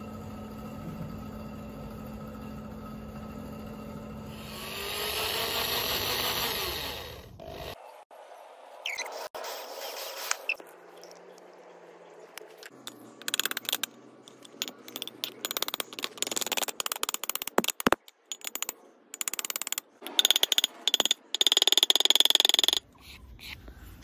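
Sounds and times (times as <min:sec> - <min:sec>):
small hammer tapping metal rivets: 0:12.8 - 0:22.9.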